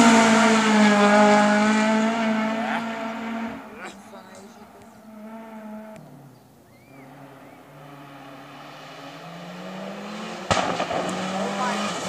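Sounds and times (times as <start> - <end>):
race car engine revving: 0.0 - 12.0.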